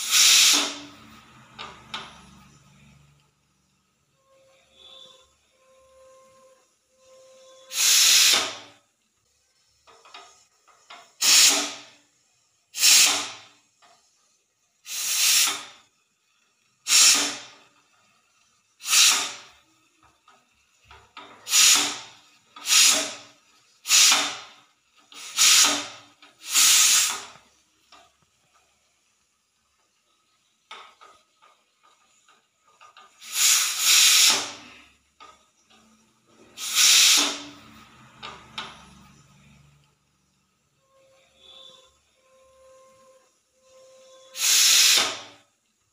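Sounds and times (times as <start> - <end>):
hissing steam blasts: 0.0 - 30.7, 33.1 - 45.6
faint steady whistle tone: 2.0 - 9.7, 38.6 - 45.6.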